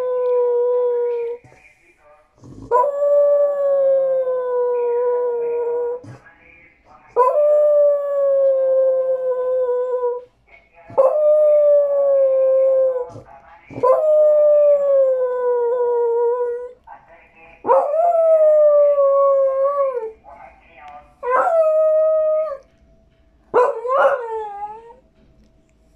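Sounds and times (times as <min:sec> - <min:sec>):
dog howling: 0:11.0 - 0:16.7, 0:17.7 - 0:20.1, 0:21.2 - 0:22.7, 0:23.5 - 0:25.0.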